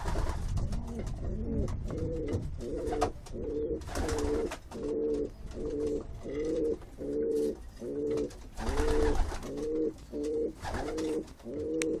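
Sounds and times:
wing flapping: 0.0 - 1.3, 2.8 - 5.0, 8.1 - 11.5
pigeons cooing: 0.6 - 12.0.

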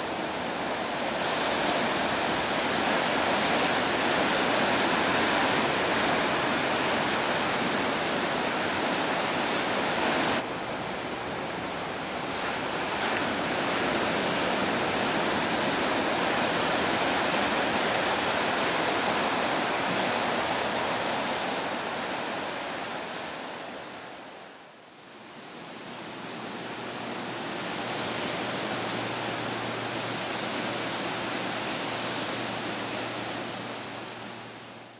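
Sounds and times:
ocean surf breaking: 0.0 - 24.6.

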